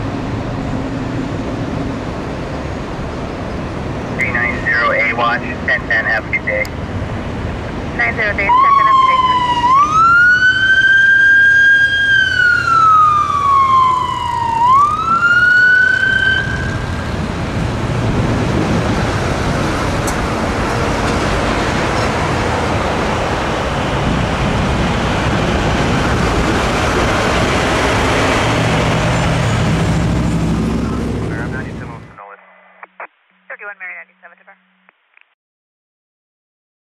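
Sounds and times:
freeway traffic noise: 0:00.0 - 0:34.4
motorcycle siren wailing: 0:08.4 - 0:17.4.

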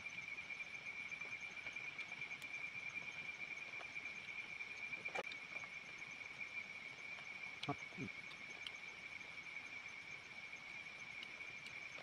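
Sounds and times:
faint ticks: 0:07.1 - 0:08.9, 0:10.6 - 0:12.0.

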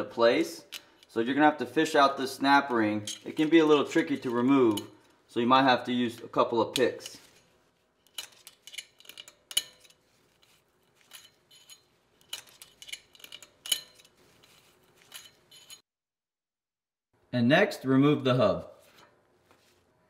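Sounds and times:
light metallic clicks and clinks: 0:11.0 - 0:15.8.

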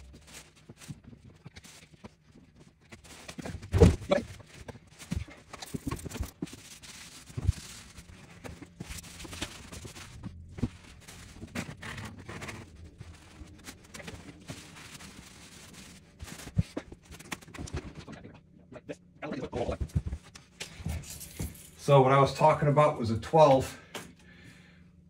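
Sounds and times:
plastic trash bag rustling: 0:00.0 - 0:18.0.

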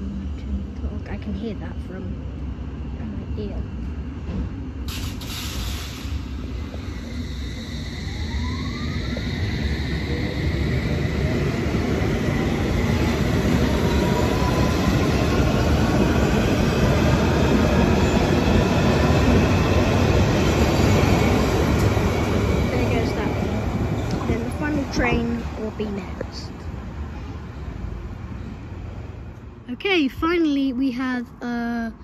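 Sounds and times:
wheel-on-rail rumble: 0:09.0 - 0:27.4.

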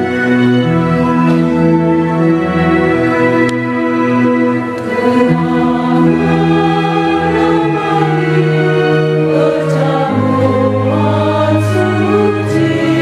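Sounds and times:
choir singing a hymn: 0:04.7 - 0:13.0.

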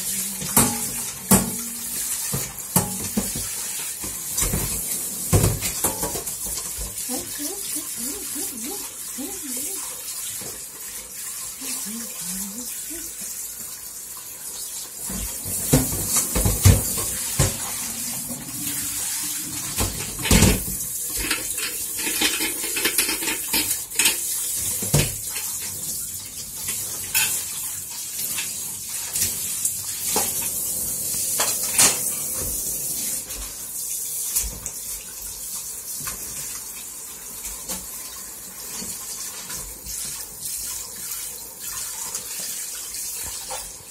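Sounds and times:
tap water splashing into sink: 0:00.0 - 0:43.9
metal pot and dishes clinking: 0:00.4 - 0:03.4.

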